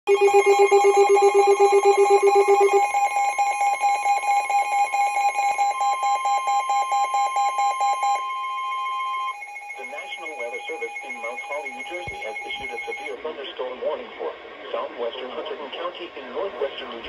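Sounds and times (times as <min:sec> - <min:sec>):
rapid alarm beeping: 0:00.1 - 0:13.2
steady high alarm tone: 0:00.1 - 0:13.2.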